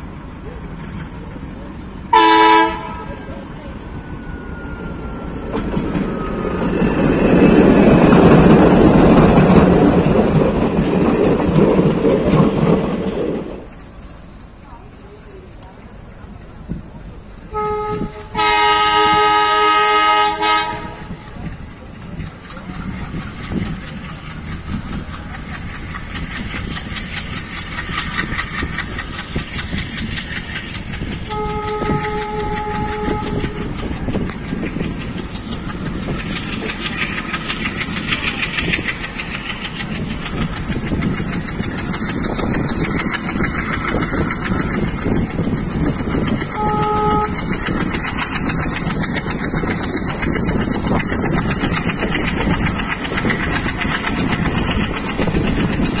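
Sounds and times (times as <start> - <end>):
diesel locomotive engine chugging: 0.0 - 56.0
train wheels on rails: 0.0 - 56.0
train horn: 2.1 - 5.7, 17.5 - 21.3, 31.2 - 33.9, 46.5 - 47.6.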